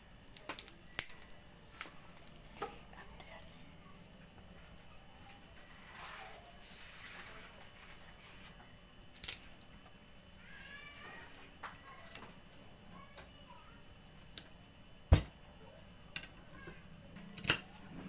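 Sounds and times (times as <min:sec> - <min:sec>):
heavy thump: 0:15.1 - 0:15.4.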